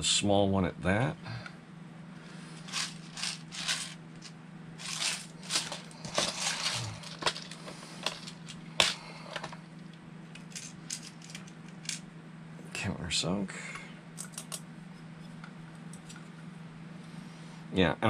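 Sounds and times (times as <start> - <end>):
screws clicking and rattling: 2.6 - 4.0, 4.8 - 9.0, 10.4 - 12.0.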